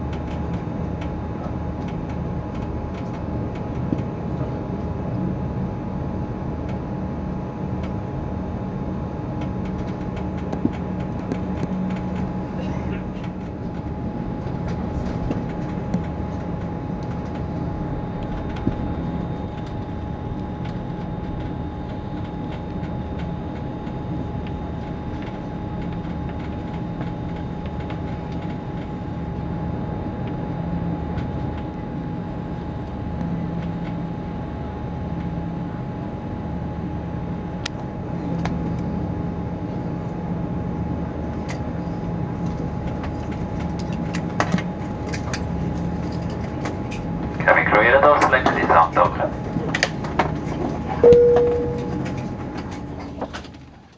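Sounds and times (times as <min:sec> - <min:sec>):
aircraft cabin engine drone: 0:00.0 - 0:53.9
constant high tone: 0:51.0 - 0:52.3.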